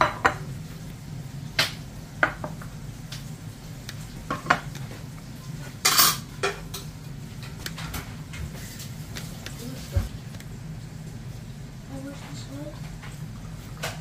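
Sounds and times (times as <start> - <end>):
plates and cutlery clinking: 0.0 - 0.5, 5.6 - 8.9
cutlery clattering on plate: 5.8 - 6.9.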